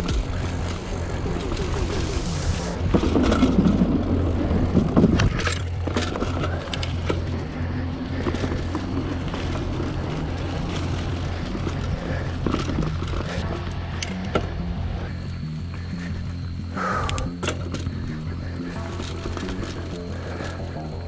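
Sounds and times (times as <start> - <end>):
bike rattling and knocking: 0.0 - 21.0
bike tyres rolling over leaves: 0.0 - 21.0
steady low rumble: 0.0 - 21.0.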